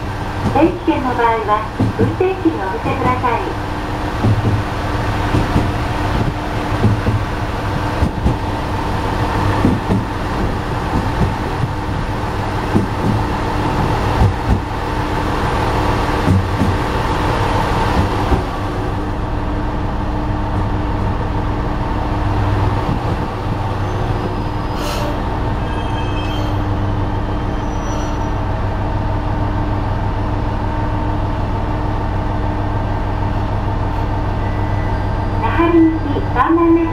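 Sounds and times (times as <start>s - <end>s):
diesel engine humming: 0.0s - 25.7s.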